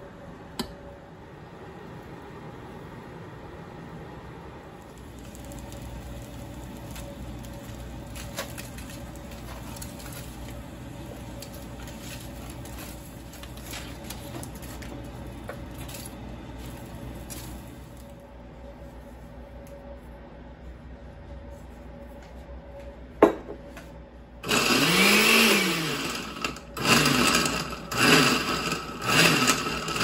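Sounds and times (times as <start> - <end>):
steady low hum: 0.0 - 24.5
tomatoes sizzling and popping: 4.8 - 18.0.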